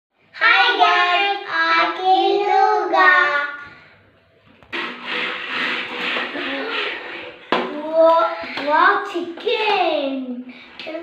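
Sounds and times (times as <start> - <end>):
burst of loud noisy sound: 4.7 - 7.5.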